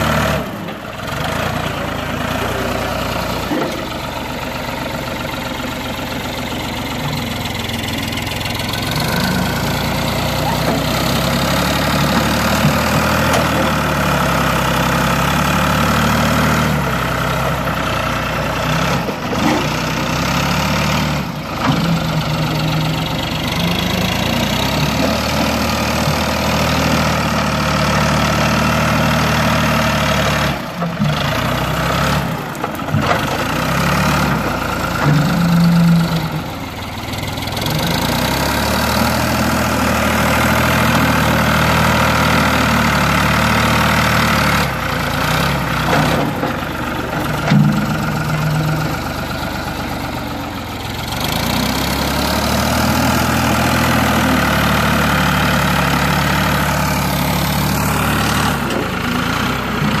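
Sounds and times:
diesel engine running: 0.0 - 60.0.

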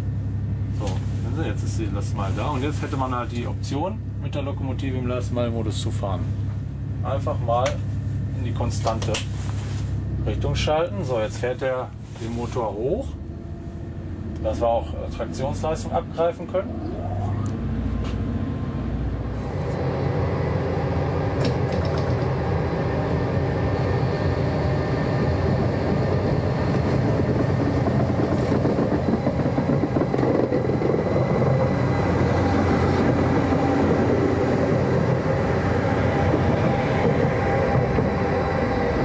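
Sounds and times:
locomotive engine drone: 0.0 - 39.0
wheels rolling on track: 19.4 - 39.0.

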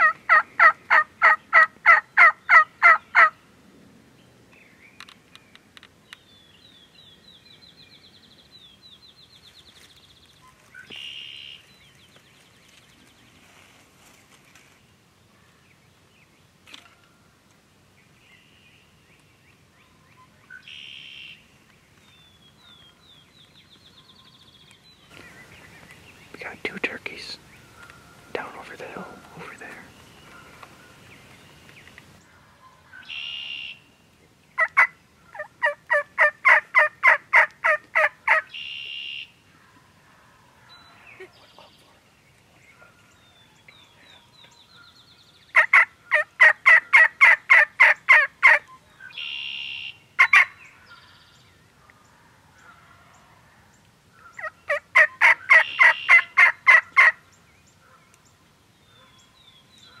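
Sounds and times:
turkeys gobbling: 0.0 - 3.3, 34.6 - 39.3, 45.6 - 50.5, 54.2 - 57.2.

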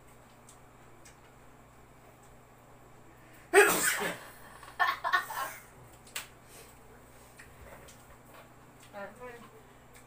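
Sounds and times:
person sneezing: 3.5 - 4.3.

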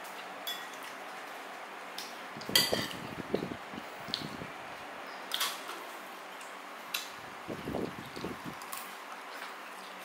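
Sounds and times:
utensil clinking against dish: 2.5 - 3.0.

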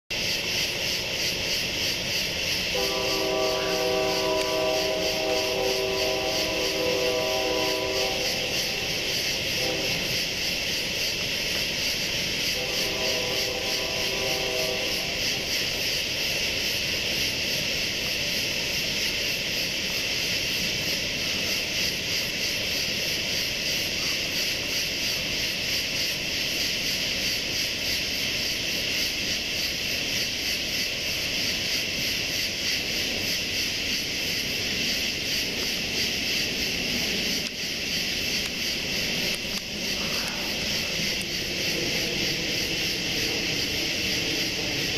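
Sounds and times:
high-pitched pulsing hiss: 0.1 - 44.9
distant aircraft engine droning: 31.5 - 44.9.

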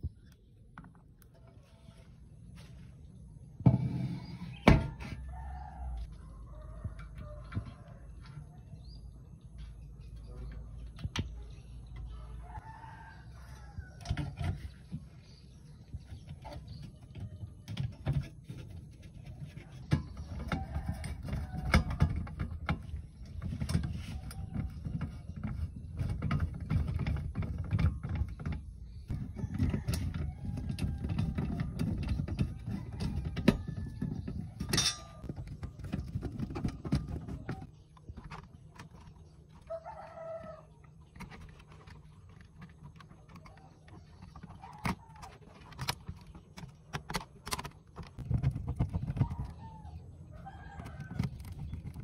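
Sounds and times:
clicks and knocks of metal parts: 16.1 - 49.6.

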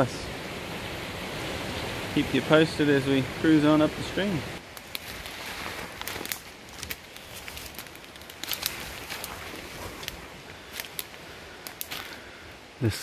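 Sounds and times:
stems brushing past: 0.8 - 12.3
footsteps crunching through dry leaves: 4.6 - 12.2
twigs snapping: 4.6 - 12.2.

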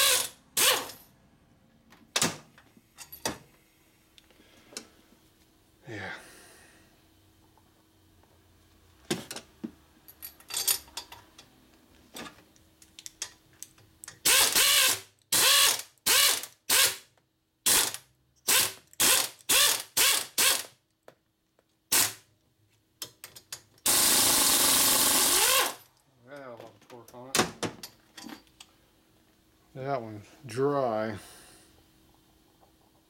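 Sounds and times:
power ratchet motor whirring: 0.0 - 1.0, 14.2 - 17.0, 17.7 - 20.7, 23.8 - 25.8.

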